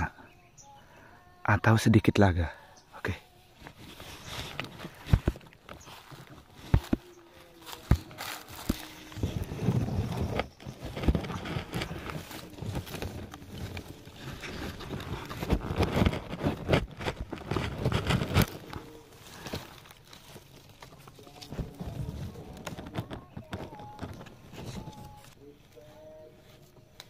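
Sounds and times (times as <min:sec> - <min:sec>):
footsteps crunching dry leaves: 0:03.5 - 0:22.9.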